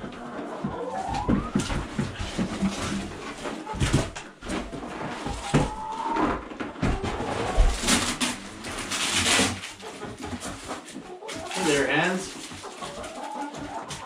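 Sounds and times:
cardboard boxes knocking and scraping: 0.7 - 14.0
cardboard rustling and tearing: 7.1 - 14.0.

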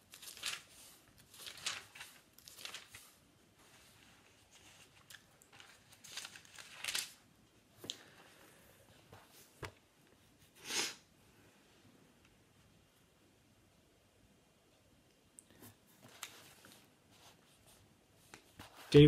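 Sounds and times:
pages turning: 0.0 - 7.2, 15.6 - 19.0.

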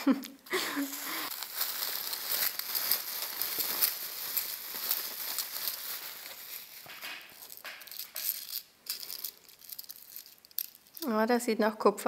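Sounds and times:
bubble wrap crinkling: 0.0 - 11.4
jewelry set down on table: 6.8 - 8.5.

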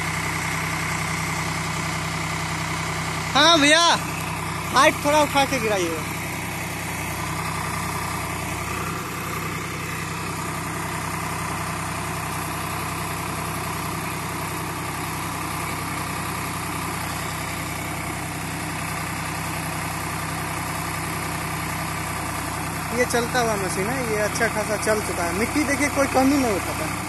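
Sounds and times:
tractor diesel engine running: 0.0 - 27.0.

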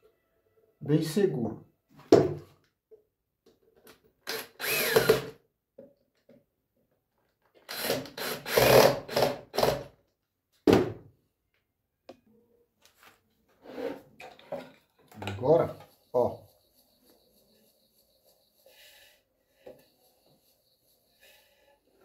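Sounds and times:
drill driving screws into wood: 4.2 - 5.4, 7.6 - 9.9.

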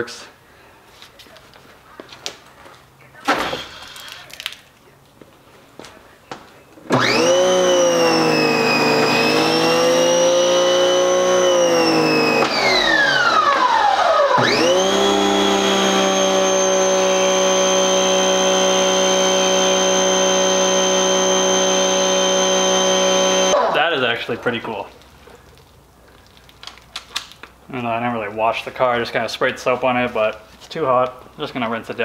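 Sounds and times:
pressure washer motor whining: 6.9 - 24.9.

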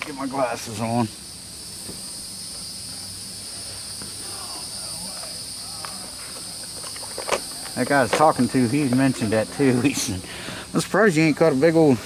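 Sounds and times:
high-pitched insect chorus: 0.0 - 12.0.

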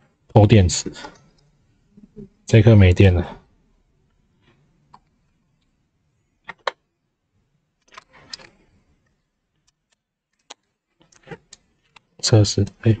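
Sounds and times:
plastic clicks and rattles: 6.4 - 6.8.

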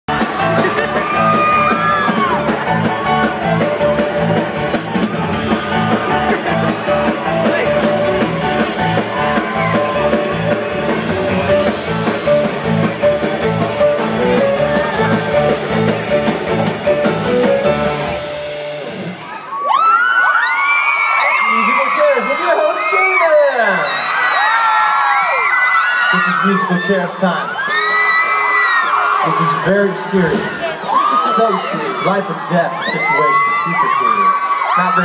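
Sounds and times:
drums keeping a steady beat: 0.1 - 19.2
live rock band playing: 0.1 - 19.5.

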